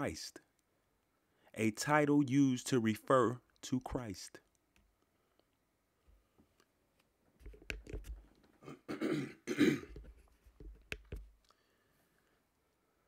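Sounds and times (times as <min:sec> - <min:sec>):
man clearing throat: 0:08.6 - 0:10.0.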